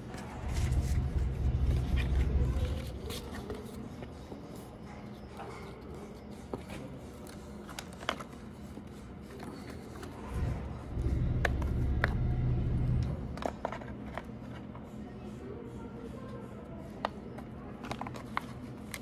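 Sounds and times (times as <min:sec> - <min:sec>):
low rumble: 0:00.3 - 0:03.4, 0:10.2 - 0:13.7.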